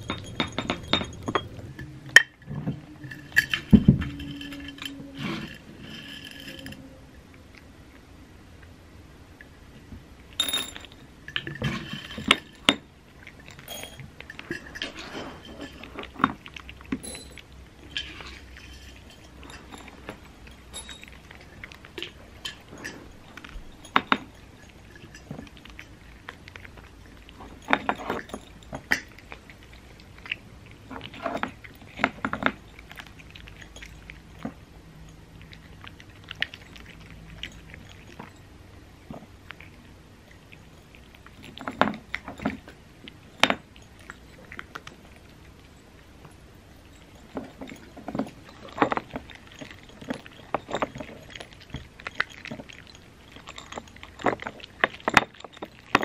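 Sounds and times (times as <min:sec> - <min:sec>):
dishes clicking and clinking: 0:00.0 - 0:06.9, 0:09.8 - 0:56.0
treats rattling out of glass jar: 0:00.0 - 0:07.0, 0:10.4 - 0:38.5, 0:39.1 - 0:56.0
cats crunching treats: 0:11.4 - 0:56.0.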